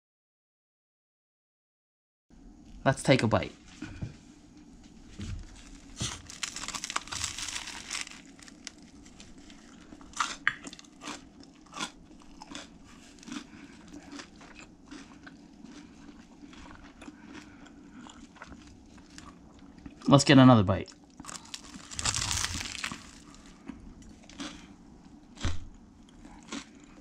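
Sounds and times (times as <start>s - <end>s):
crunchy biting and chewing: 5.4s - 20.1s, 20.9s - 27.0s.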